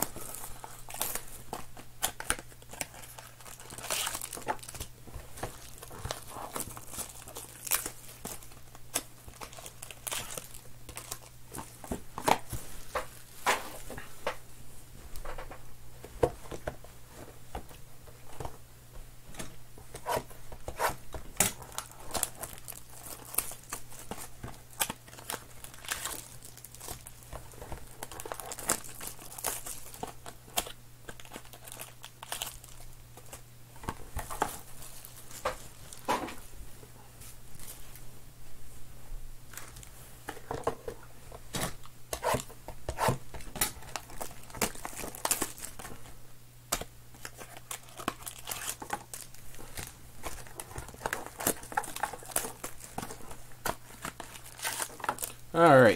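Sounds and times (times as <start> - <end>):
card wrappers crinkling and tearing: 0.0 - 13.8, 19.9 - 36.1, 41.5 - 55.9.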